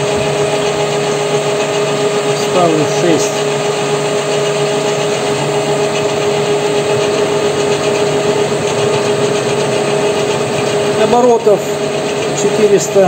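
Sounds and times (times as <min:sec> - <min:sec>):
metal lathe whining: 0:00.0 - 0:13.0.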